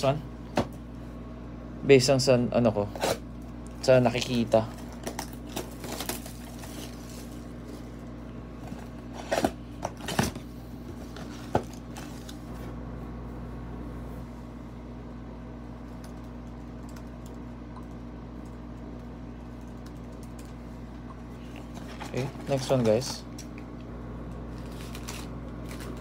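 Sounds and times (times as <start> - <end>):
cellophane wrap crinkling: 4.3 - 8.0, 24.5 - 26.0.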